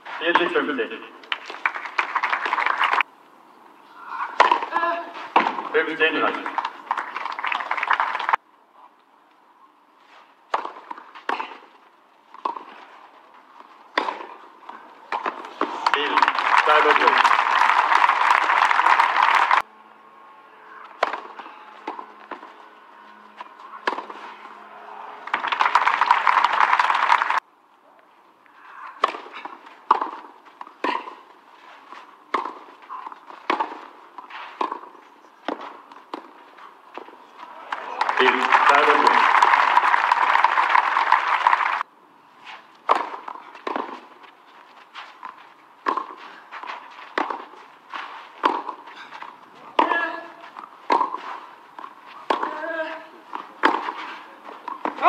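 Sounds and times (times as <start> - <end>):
tennis ball struck by rackets: 4.4 - 5.8, 10.5 - 12.9, 13.9 - 17.1, 20.9 - 22.5, 23.4 - 24.3, 29.0 - 36.4, 42.8 - 44.3, 45.2 - 55.0
tennis ball bouncing on clay: 4.4 - 6.8, 10.5 - 12.8, 13.6 - 17.4, 23.8 - 24.2, 29.0 - 39.2, 42.8 - 55.0
tennis ball pops: 10.5 - 11.6, 29.0 - 31.2, 32.3 - 32.6, 42.8 - 44.0, 45.8 - 46.2, 48.4 - 48.8, 50.9 - 51.2.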